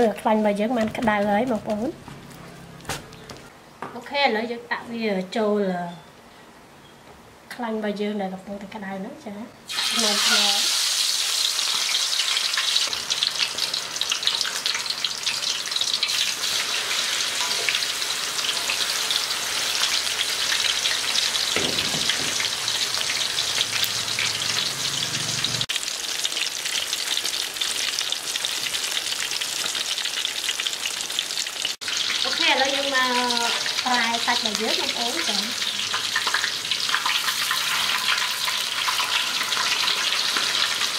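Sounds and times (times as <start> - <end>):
chicken frying in hot oil: 9.7 - 40.9.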